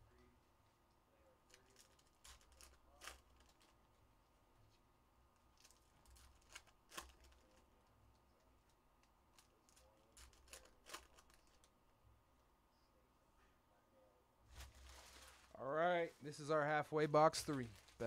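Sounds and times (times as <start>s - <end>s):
trading cards clicking and rustling: 5.5s - 7.7s, 8.6s - 11.7s.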